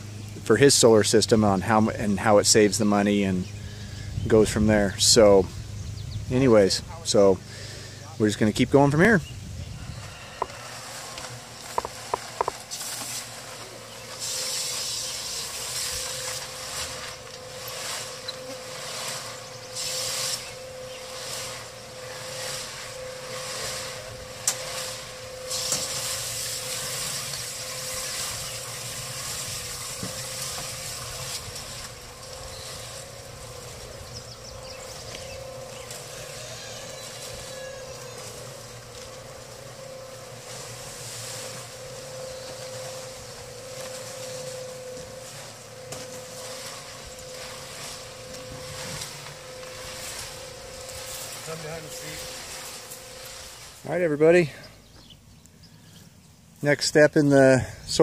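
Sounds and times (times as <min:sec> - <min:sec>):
cement mixer motor hum: 0:08.8 - 0:54.0
concrete tumbling in a drum: 0:10.1 - 0:53.9.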